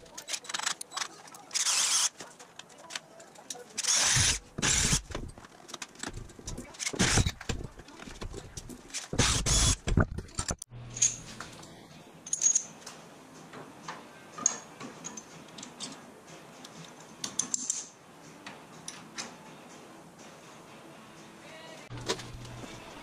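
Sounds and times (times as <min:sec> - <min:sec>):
tools clattering on a workbench: 0:09.8 - 0:19.5.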